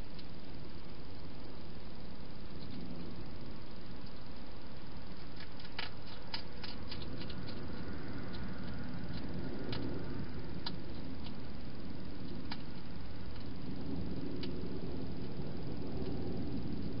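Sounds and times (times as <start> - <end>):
steady hiss: 0.0 - 17.0
hedgehog crunching food: 5.1 - 15.4.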